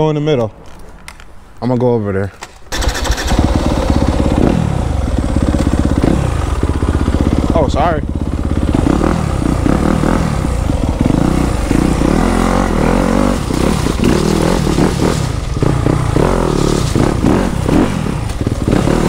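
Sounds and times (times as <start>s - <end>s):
dirt bike engine revving: 2.7s - 19.0s
tyres bumping over gravel: 13.3s - 17.6s.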